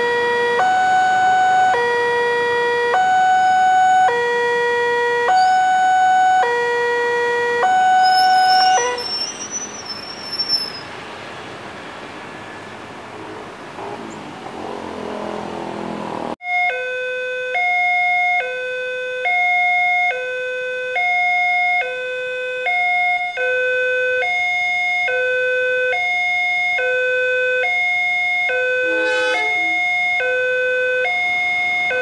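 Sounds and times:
level crossing two-tone alarm: 0.0 - 9.2, 16.4 - 32.0.

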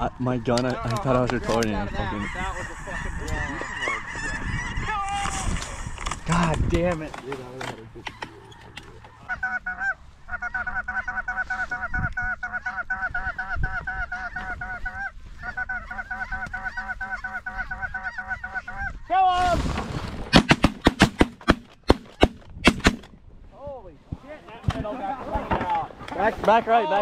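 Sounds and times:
snow goose calls: 0.3 - 5.0, 8.1 - 19.2
shotgun shots: 20.3 - 23.1.

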